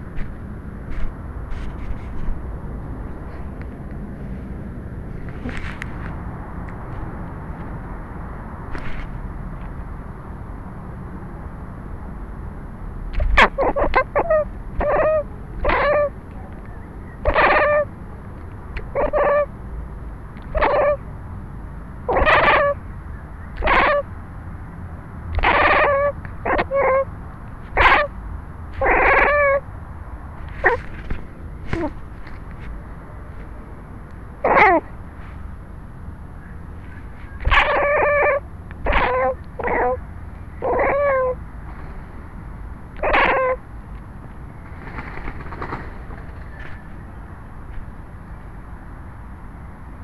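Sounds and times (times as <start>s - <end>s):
cat meowing: 13.2s - 16.1s, 20.5s - 21.0s, 22.1s - 22.8s, 23.6s - 24.0s, 25.4s - 27.1s, 27.8s - 28.1s, 28.8s - 29.6s, 34.4s - 34.8s, 37.4s - 40.0s, 40.6s - 41.4s, 43.0s - 43.6s.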